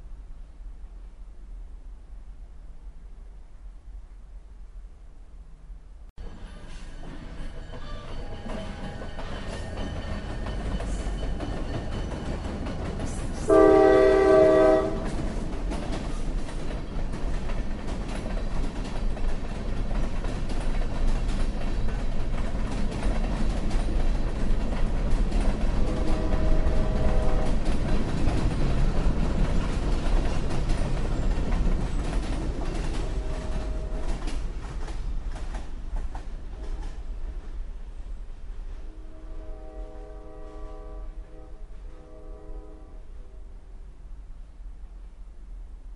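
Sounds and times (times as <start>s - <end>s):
wheels clacking on rails: 6.2s - 37.6s
locomotive air horn blast: 13.4s - 15.1s, 25.8s - 27.6s, 33.0s - 34.2s, 38.8s - 43.5s.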